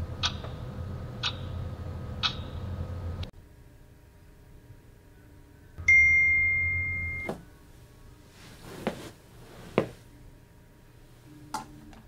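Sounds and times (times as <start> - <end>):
electronic ding: 5.8 - 7.3.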